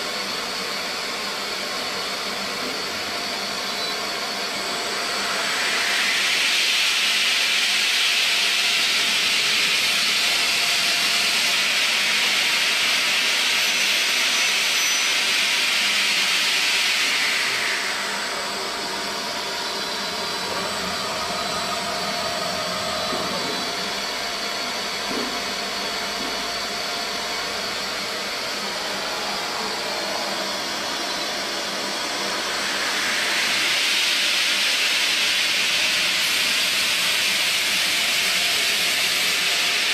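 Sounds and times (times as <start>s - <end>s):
steady machine noise: 0.0s - 39.9s.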